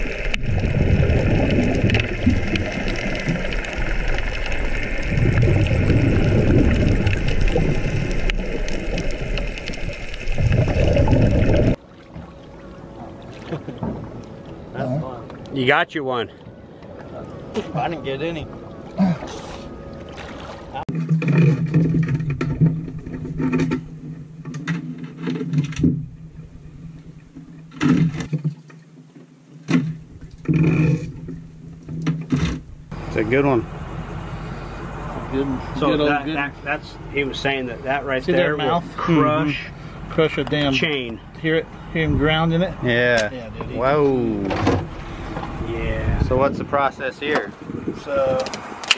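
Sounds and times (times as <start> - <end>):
underwater exhaust bubbles: 0.0 - 14.7
splashing and scraping: 0.0 - 15.5, 16.4 - 32.9
steady low hum: 29.8 - 48.2.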